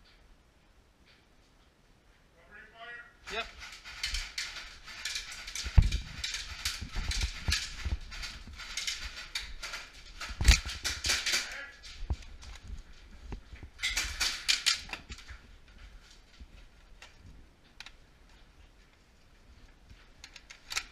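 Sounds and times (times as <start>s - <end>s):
clicks and clatter of gear: 3.3s - 15.5s, 20.2s - 20.9s.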